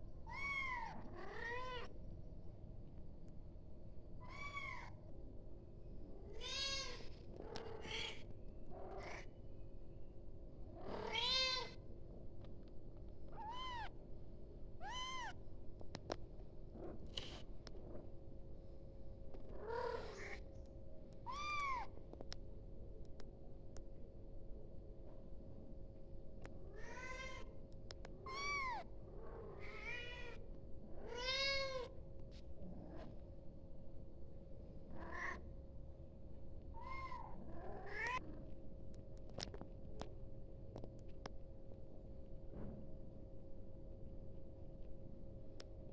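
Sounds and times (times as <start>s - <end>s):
kitten meowing: 13.4s - 13.9s, 14.8s - 15.4s, 21.3s - 21.9s, 28.2s - 28.9s.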